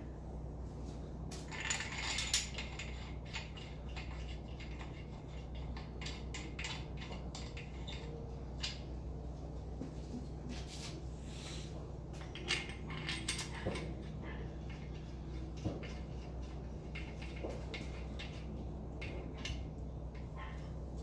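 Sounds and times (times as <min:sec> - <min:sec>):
steady low hum: 0:00.0 - 0:21.0
metallic clinks of engine parts: 0:01.4 - 0:08.9, 0:12.2 - 0:20.6.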